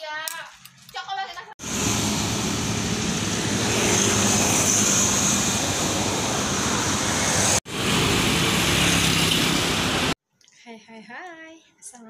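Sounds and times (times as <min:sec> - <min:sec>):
motorcycles and cars passing: 0:01.6 - 0:10.2.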